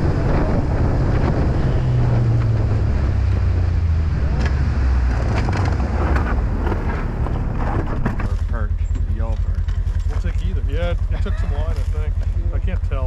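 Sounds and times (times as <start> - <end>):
snowmobile engine running: 0.0 - 13.0
wind buffeting microphone: 0.0 - 13.0.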